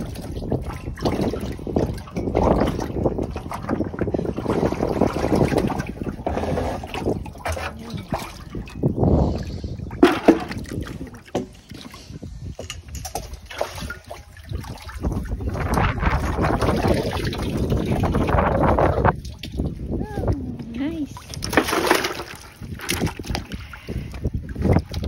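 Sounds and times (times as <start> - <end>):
landing net scooping water: 0.0 - 20.0, 20.9 - 25.0
wind buffeting microphone: 0.0 - 25.0
fish splashing in water: 13.1 - 19.7, 21.2 - 25.0.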